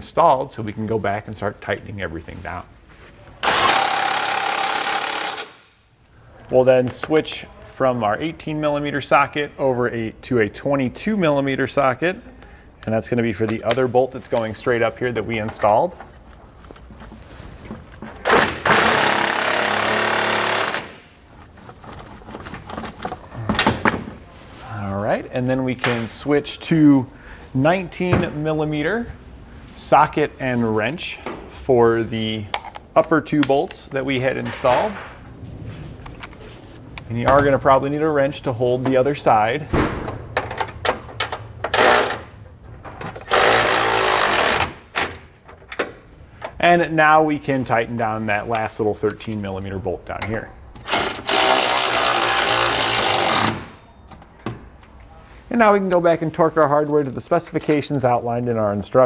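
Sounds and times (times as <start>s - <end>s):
cordless electric ratchet running: 3.4s - 5.6s, 18.7s - 20.9s, 43.3s - 44.8s, 50.8s - 53.6s
impact wrench hammering: 3.4s - 5.8s, 18.2s - 21.1s, 40.4s - 42.3s, 43.2s - 45.2s, 50.8s - 53.8s.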